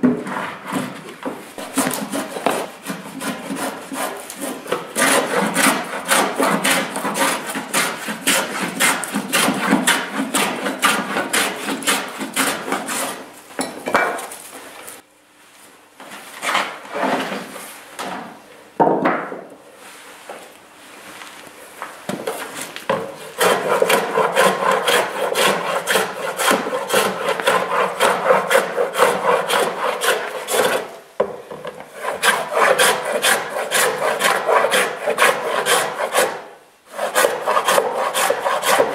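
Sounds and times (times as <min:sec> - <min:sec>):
hand plane shaving wood: 0:00.0 - 0:13.2, 0:23.1 - 0:31.0, 0:31.9 - 0:38.9
hand tools scraping wood: 0:00.0 - 0:13.3, 0:16.4 - 0:17.6, 0:22.3 - 0:31.0, 0:31.7 - 0:38.9.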